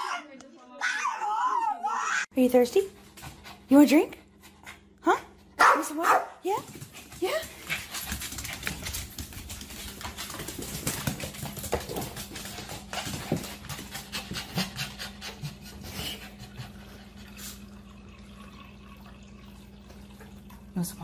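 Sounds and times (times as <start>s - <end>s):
small dog panting: 6.8s - 17.6s
low steady hum: 15.2s - 21.0s.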